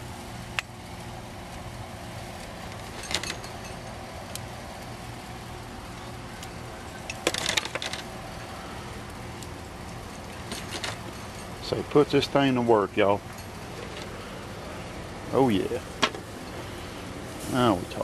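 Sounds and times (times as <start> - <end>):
low mechanical hum: 0.0 - 18.0
metal tongs clinking on grate: 2.7 - 4.4, 9.4 - 12.3.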